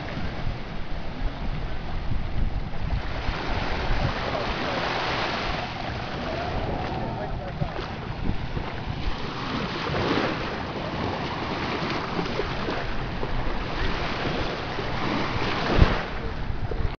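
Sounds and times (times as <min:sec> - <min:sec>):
surf washing onto beach: 0:00.0 - 0:17.0
wind buffeting microphone: 0:00.0 - 0:17.0.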